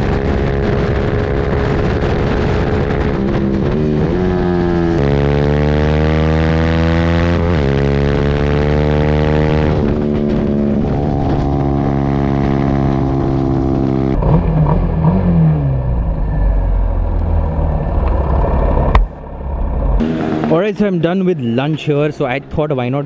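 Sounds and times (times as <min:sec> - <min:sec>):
motorcycle engine running hard: 0:00.0 - 0:14.2, 0:20.0 - 0:20.8
rough engine rumble with revs: 0:00.0 - 0:23.0.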